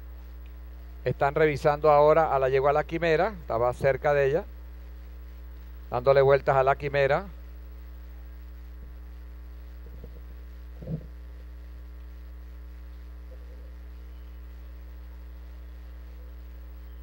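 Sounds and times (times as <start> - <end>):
electrical mains hum: 0.0 - 17.0
short low bump: 10.8 - 11.2.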